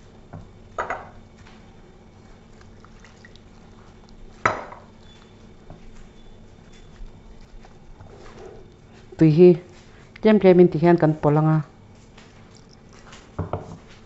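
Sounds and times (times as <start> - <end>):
water splashing into bowl: 2.6 - 4.8.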